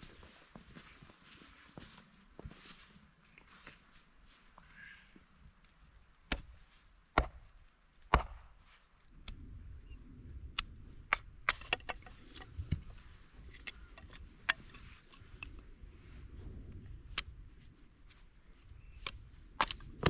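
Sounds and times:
axe chopping firewood: 6.3s - 7.5s, 8.1s - 8.6s.

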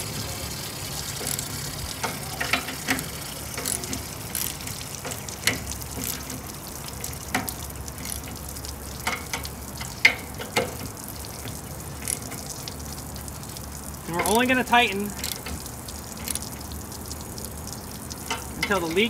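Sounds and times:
water hissing from leaking pipe: 0.0s - 19.0s
ratchet wrench clicking: 1.2s - 6.4s, 7.0s - 8.4s, 12.0s - 12.5s, 15.2s - 15.6s, 16.2s - 16.5s.

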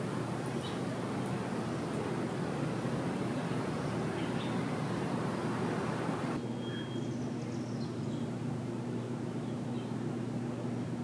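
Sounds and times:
high hiss: 0.0s - 6.4s
low mechanical hum and rumble: 0.0s - 11.0s
high bird chirps: 6.4s - 8.3s.

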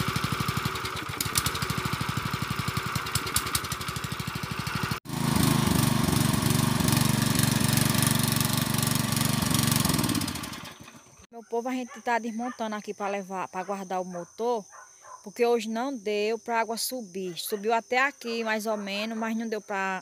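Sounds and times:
gasoline water pump running: 0.0s - 11.2s.

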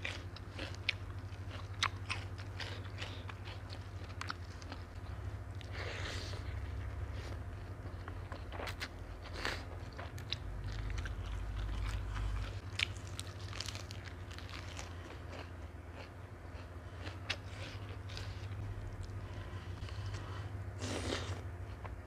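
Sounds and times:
chewing and mouth smacks: 0.0s - 5.0s
steady low hum: 0.0s - 22.0s.

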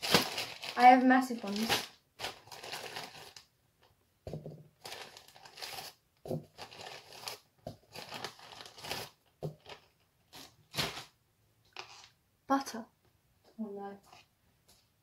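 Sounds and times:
plastic bag crinkling: 0.0s - 3.5s, 4.8s - 11.1s, 11.8s - 12.2s.

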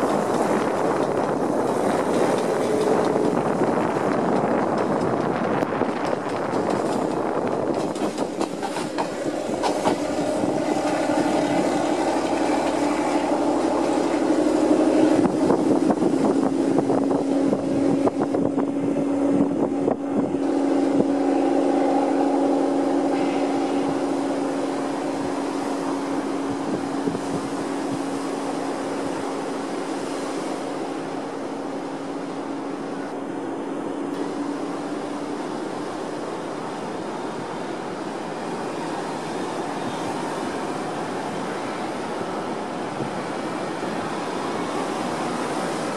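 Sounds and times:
wheels clattering on rails: 0.0s - 18.6s
train engine drone: 0.0s - 45.9s.

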